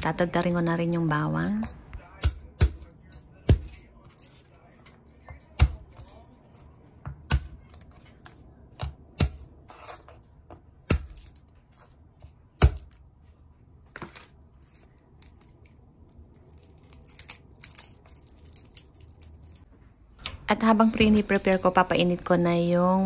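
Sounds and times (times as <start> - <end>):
knife crushing garlic on board: 1.6 - 4.5, 5.3 - 6.2, 8.8 - 11.4
garlic skins crackling while peeled: 14.8 - 19.7.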